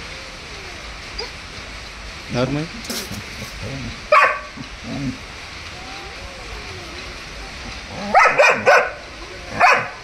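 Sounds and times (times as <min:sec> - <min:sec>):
puppy yelping barks: 0:04.1 - 0:04.5, 0:08.0 - 0:10.0.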